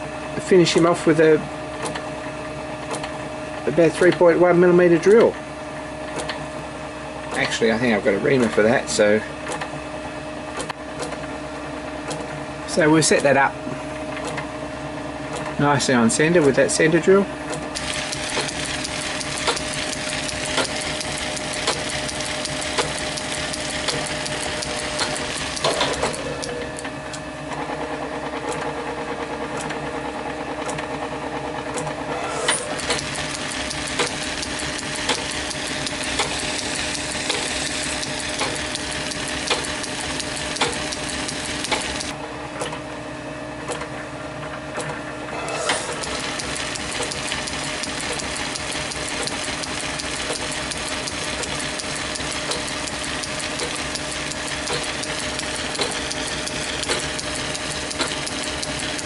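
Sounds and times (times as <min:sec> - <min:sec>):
lathe motor hum: 0:17.8 - 0:26.9, 0:32.2 - 0:42.2, 0:45.6 - 0:59.0.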